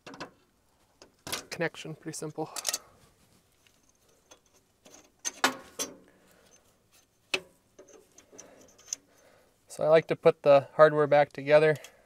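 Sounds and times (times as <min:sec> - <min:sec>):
metal hardware clicking: 0:02.5 - 0:02.9, 0:07.0 - 0:09.2.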